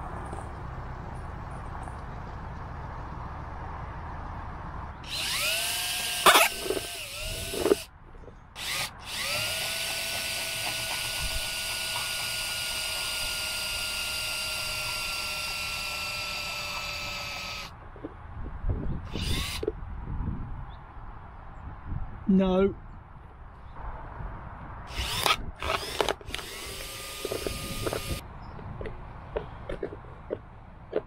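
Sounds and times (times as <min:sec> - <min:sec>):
electric drill boring plastic: 0:05.0 - 0:07.9, 0:08.6 - 0:17.7, 0:19.1 - 0:19.6, 0:24.9 - 0:28.2.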